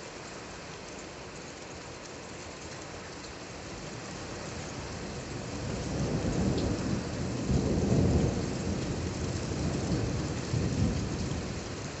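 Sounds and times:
steady rain: 0:00.0 - 0:12.0
rolling thunder: 0:05.6 - 0:11.6.

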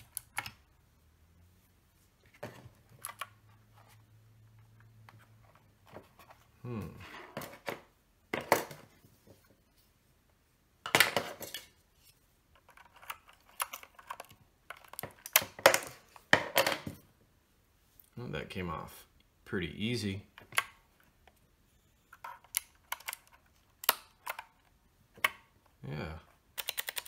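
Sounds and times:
keycaps clicking and clattering: 0:12.6 - 0:16.8, 0:22.2 - 0:25.6, 0:26.3 - 0:27.0.

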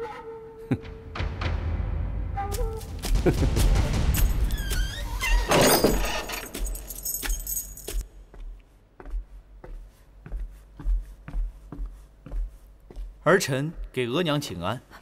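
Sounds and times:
metallic jangle and crash: 0:03.9 - 0:08.0
footsteps on a hard floor: 0:06.4 - 0:14.6.

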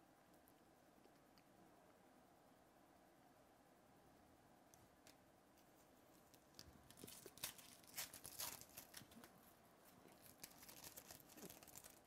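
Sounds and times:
foil wrapper tearing and crinkling: 0:06.9 - 0:09.3, 0:10.1 - 0:12.0.

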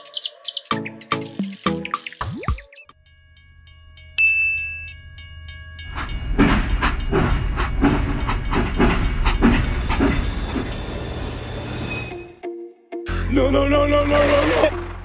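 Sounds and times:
rhythmic chuffing: 0:02.5 - 0:11.8.

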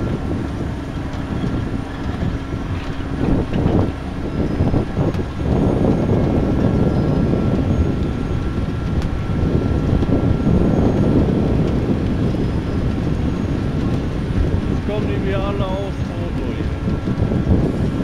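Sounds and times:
beet harvesting machine working: 0:14.6 - 0:18.0.

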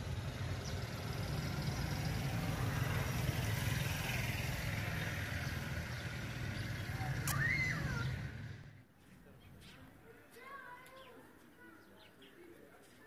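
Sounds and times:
vehicle engine humming: 0:00.0 - 0:08.8
road noise: 0:00.0 - 0:13.0.

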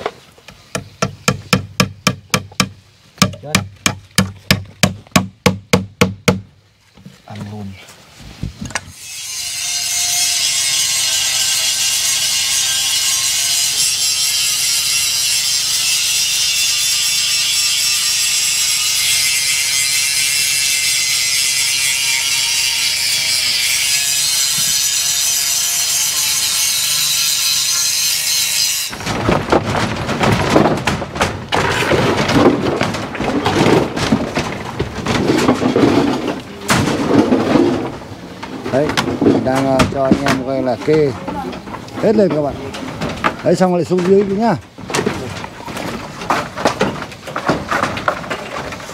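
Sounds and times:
angle grinder cutting steel: 0:08.9 - 0:29.0
knocking and clattering: 0:29.0 - 0:48.9.

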